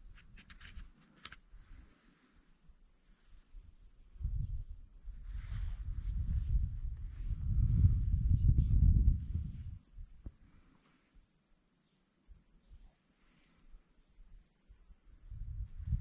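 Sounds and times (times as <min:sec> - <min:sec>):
insects chirring: 0:00.0 - 0:16.0
wind rumble on microphone: 0:03.6 - 0:10.4, 0:15.2 - 0:16.0.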